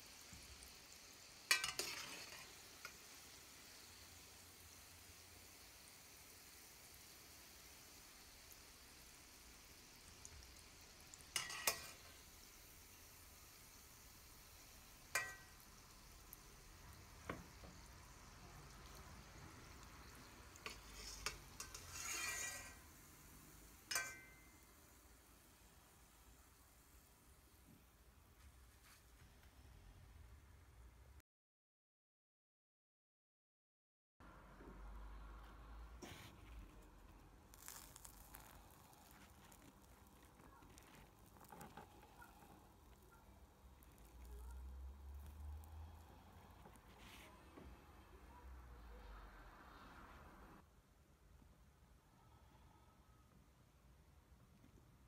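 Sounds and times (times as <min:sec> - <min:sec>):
faint frying sizzle: 0:00.0 - 0:30.3, 0:34.3 - 0:50.6
metal spoon clinking on frying pan: 0:01.5 - 0:03.0, 0:11.1 - 0:12.2, 0:15.1 - 0:15.6, 0:20.6 - 0:22.9, 0:23.8 - 0:24.8
food handling sounds: 0:36.0 - 0:44.6
quiet crackles and soft tearing: 0:36.0 - 0:48.1.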